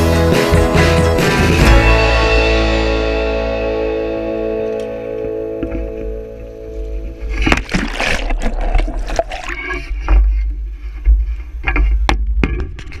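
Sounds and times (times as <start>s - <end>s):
sea water splashing: 7.4s - 9.9s.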